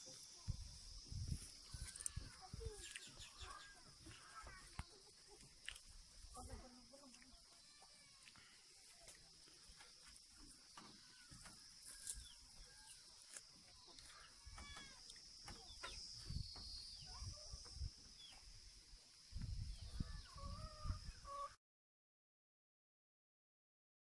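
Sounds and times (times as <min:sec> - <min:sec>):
bird chirps: 0:00.0 - 0:05.4, 0:11.0 - 0:18.5
steady high-pitched hiss: 0:00.0 - 0:21.5.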